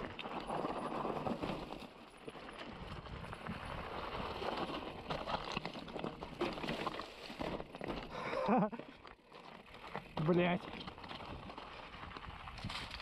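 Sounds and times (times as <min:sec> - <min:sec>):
bike rattling: 0:00.0 - 0:13.0
bike tyres rumbling over dirt: 0:00.0 - 0:13.0
wind noise: 0:02.6 - 0:05.4, 0:11.0 - 0:13.0.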